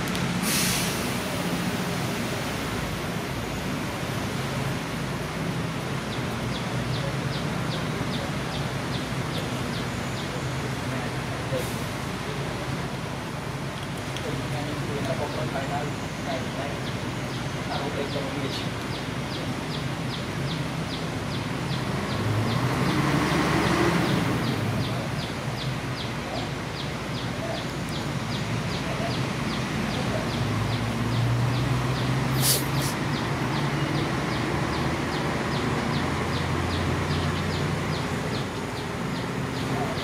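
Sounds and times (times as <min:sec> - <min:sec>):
sharp hiss: 0:00.2 - 0:03.7, 0:32.3 - 0:33.1.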